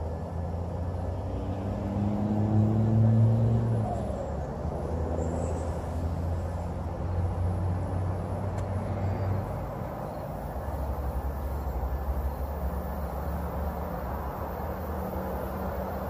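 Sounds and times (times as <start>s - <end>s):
train engine drone: 0.0s - 16.0s
train rushing noise: 8.9s - 16.0s.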